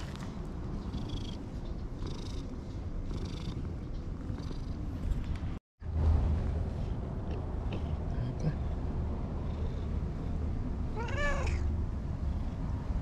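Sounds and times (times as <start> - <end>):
cat purring: 0.8 - 5.2.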